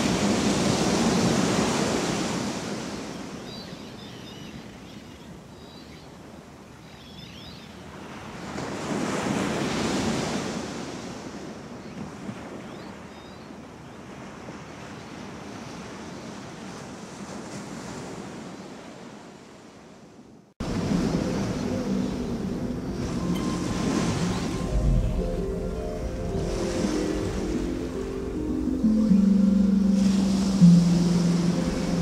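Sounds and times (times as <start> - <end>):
ocean surf washing in: 0.0 - 3.4, 20.6 - 32.0.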